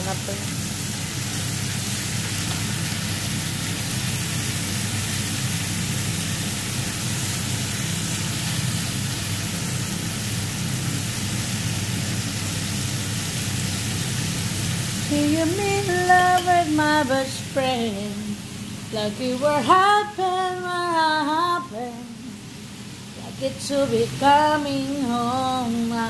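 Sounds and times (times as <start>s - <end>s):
meat sizzling in a pan: 0.0s - 19.0s.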